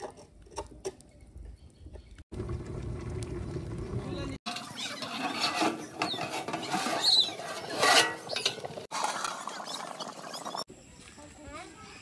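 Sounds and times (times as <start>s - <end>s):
metal pots and utensils clattering: 4.5s - 10.6s.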